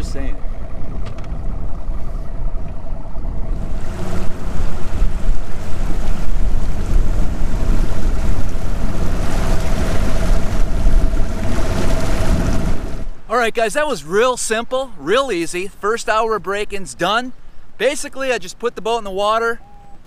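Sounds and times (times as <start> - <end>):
outboard motor running: 0.0 - 13.3
wind buffeting microphone: 0.0 - 13.3
water splashing: 0.0 - 20.0.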